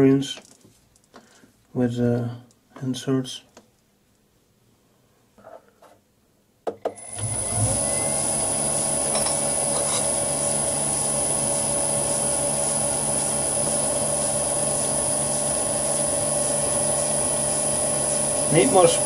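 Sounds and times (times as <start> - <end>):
metal lathe motor whining: 7.1 - 19.0.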